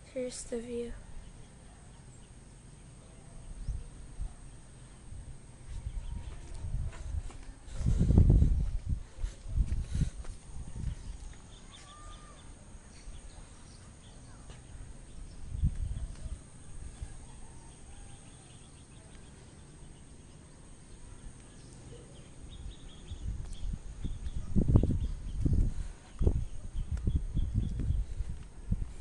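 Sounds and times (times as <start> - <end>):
distant bird calls: 9.2 - 29.0.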